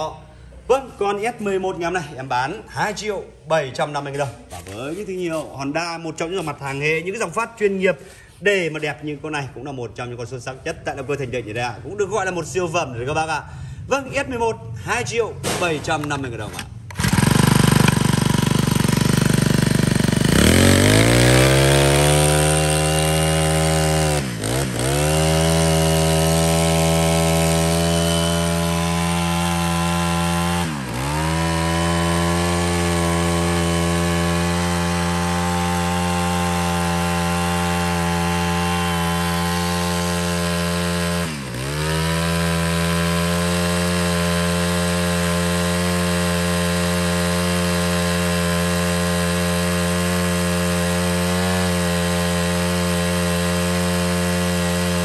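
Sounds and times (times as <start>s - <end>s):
brush cutter engine running: 15.4s - 55.0s.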